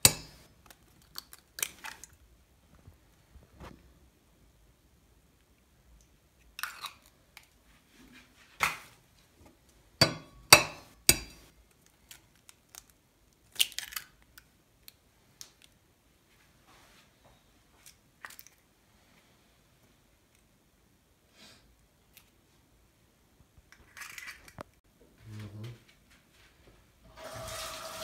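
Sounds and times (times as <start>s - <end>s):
eggshell tapping on metal rim: 0.0s - 0.4s, 10.0s - 11.4s
eggshell crackling: 0.0s - 2.3s.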